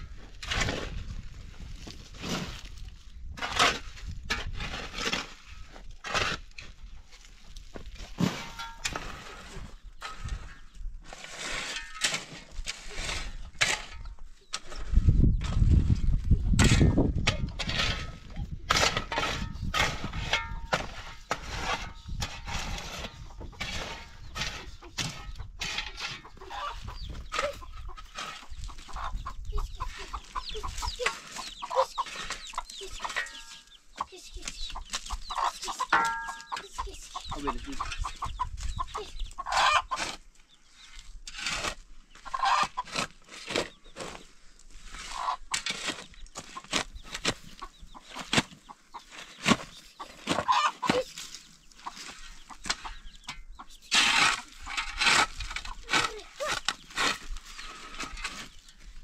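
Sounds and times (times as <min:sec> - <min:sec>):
chickens clucking: 0:16.4 - 0:59.0.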